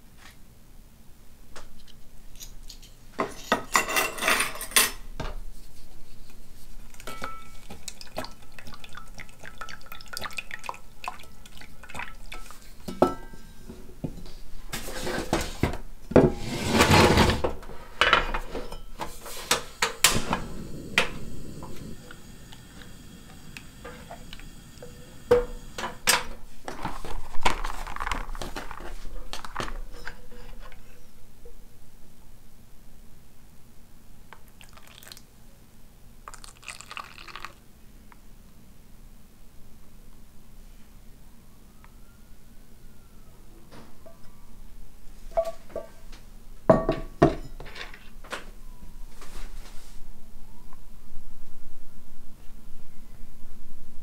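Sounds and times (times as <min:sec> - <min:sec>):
rushing noise: 0:19.9 - 0:26.1.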